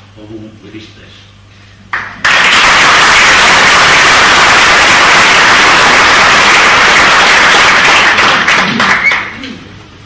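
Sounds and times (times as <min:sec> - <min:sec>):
audience applauding: 0:01.9 - 0:09.4.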